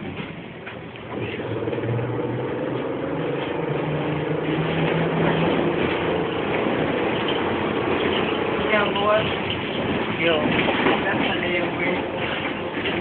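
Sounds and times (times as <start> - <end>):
road noise: 0.0 - 13.0
electric traction drive humming: 1.0 - 10.2.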